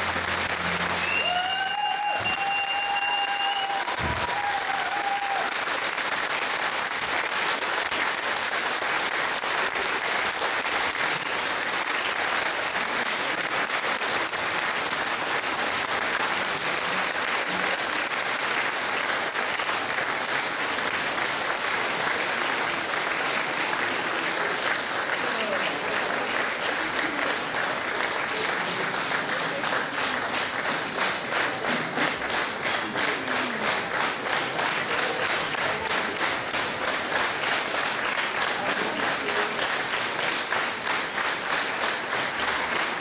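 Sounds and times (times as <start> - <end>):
audience applauding: 0.0 - 43.0.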